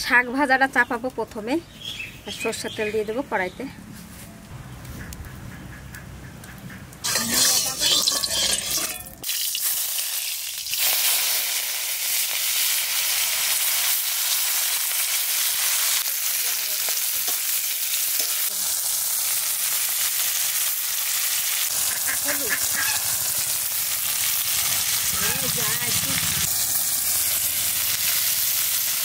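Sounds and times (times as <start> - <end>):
greens sizzling in hot oil: 7.0 - 29.0.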